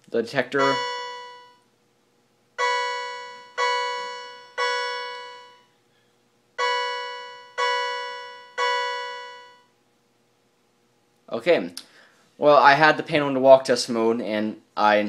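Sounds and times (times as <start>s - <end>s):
chime-like fire alarm tone: 0.5s - 1.7s, 2.6s - 5.7s, 6.6s - 9.7s.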